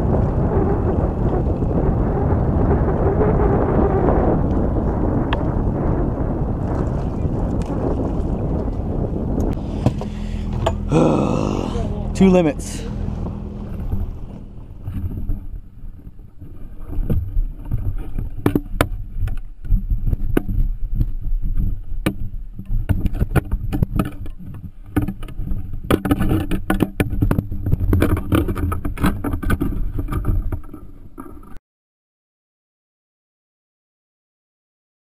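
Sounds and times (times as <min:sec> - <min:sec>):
wind rumble on microphone: 0:00.0 - 0:31.6
sharp knocks and clatter: 0:22.0 - 0:31.6.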